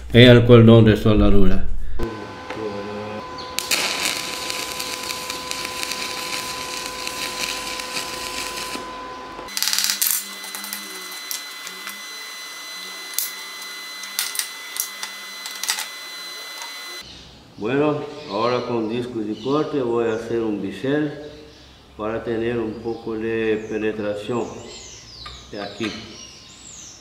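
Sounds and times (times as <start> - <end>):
thin high whine: 1.9 - 17.0
welding arc crackling: 2.9 - 17.0.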